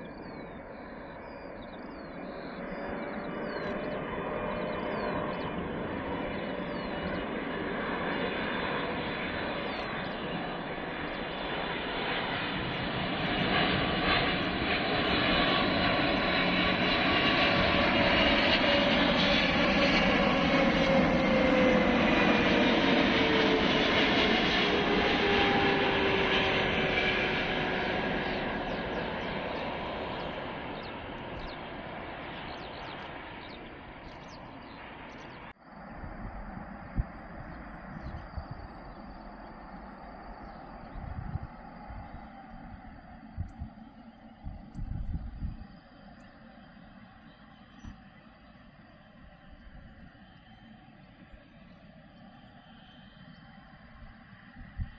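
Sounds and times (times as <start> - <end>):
birds chirping: 0.0 - 35.5
jet engines roaring: 0.0 - 54.9.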